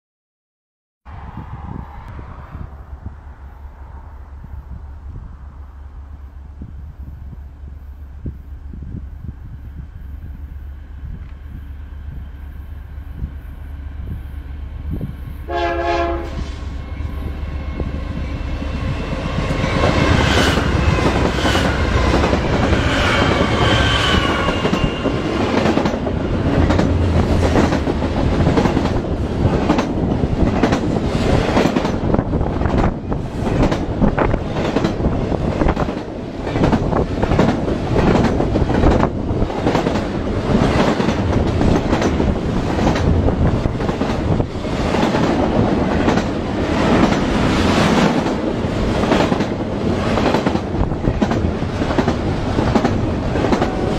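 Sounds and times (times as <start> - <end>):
train wheels rumbling on rails: 1.1 - 53.9
locomotive horn: 15.5 - 16.8
rapid rail clicks: 24.2 - 53.9.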